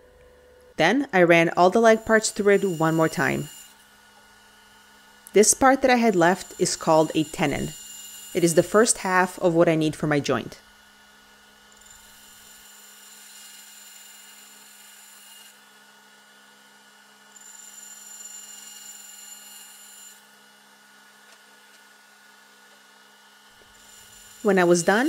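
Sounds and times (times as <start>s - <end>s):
bandsaw humming: 1.4s - 10.2s, 23.5s - 25.0s
saw blade cutting wood: 1.6s - 3.8s, 5.4s - 9.7s, 11.7s - 15.6s, 17.3s - 20.3s, 23.6s - 25.0s.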